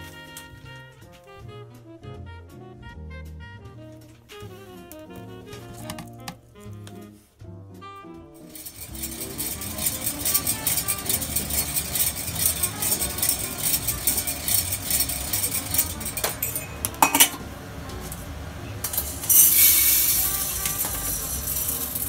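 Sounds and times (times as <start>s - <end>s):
coffee beans clattering in metal drum: 8.5s - 17.4s, 18.8s - 22.0s.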